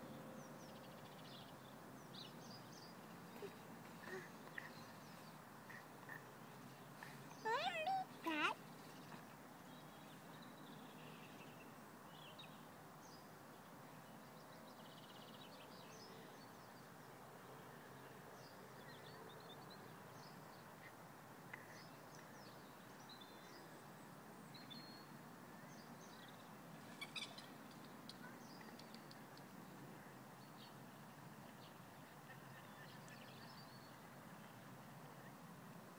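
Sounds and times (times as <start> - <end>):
small birds chirping: 0.4 - 13.3, 18.4 - 29.8.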